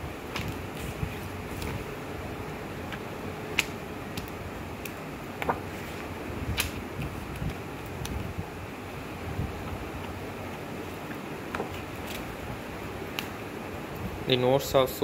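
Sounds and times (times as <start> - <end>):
steady background hiss: 0.0 - 15.0
pages turning and papers shifting: 0.3 - 2.0, 5.4 - 8.2.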